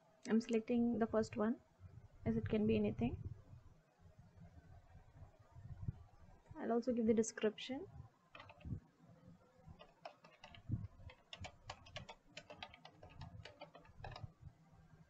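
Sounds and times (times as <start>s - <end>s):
keyboard typing: 8.3s - 8.8s, 9.8s - 14.4s.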